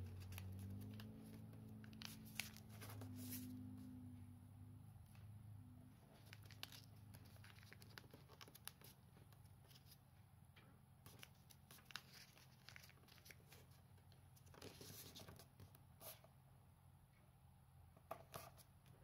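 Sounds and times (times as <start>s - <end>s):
paper crinkling while folded: 0.0s - 3.5s, 6.1s - 10.0s, 11.1s - 15.8s
low steady hum: 0.0s - 17.9s.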